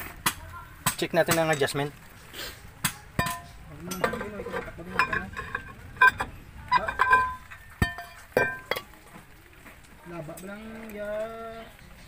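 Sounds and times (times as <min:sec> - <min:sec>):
metallic knocks and clinks: 0:03.2 - 0:08.9.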